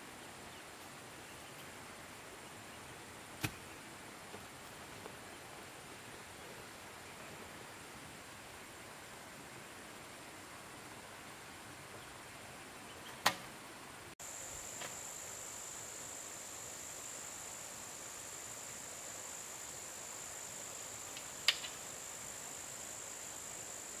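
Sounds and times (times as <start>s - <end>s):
faint hiss: 0.0s - 24.0s
crickets droning: 14.2s - 24.0s.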